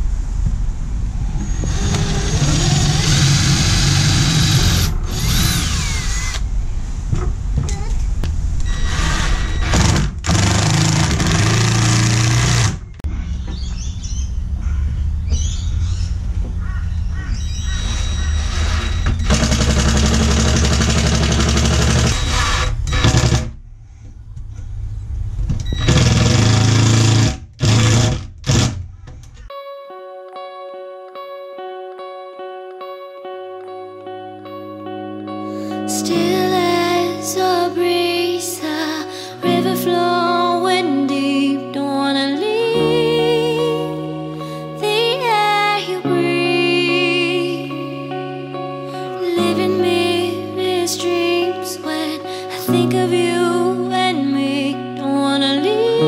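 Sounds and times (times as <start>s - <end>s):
cordless drill boring into wood: 1.7s - 6.4s, 8.7s - 12.9s, 18.3s - 23.5s, 25.8s - 28.8s.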